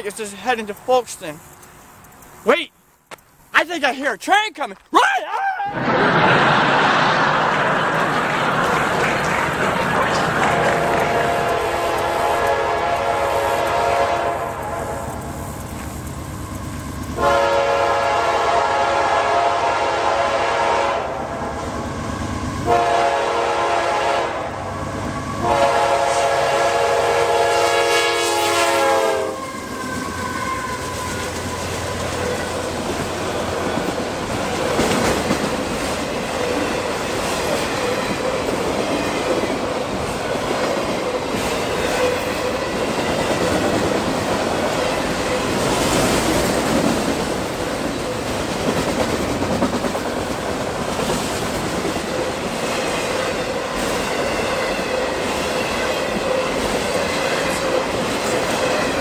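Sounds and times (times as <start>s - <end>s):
locomotive air horn blasts: 11.0s - 15.2s, 17.2s - 21.3s, 22.6s - 24.7s, 25.4s - 32.4s.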